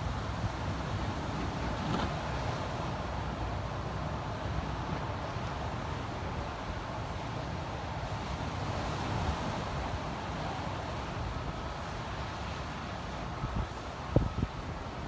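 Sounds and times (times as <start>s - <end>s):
ocean surf breaking: 0.0s - 15.0s
wind buffeting microphone: 13.3s - 15.0s.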